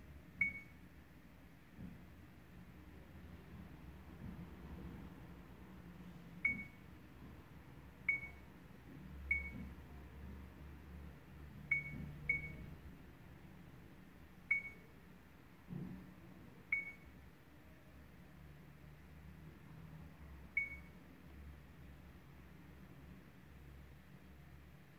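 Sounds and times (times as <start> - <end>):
short high beeps: 0.4 - 0.8.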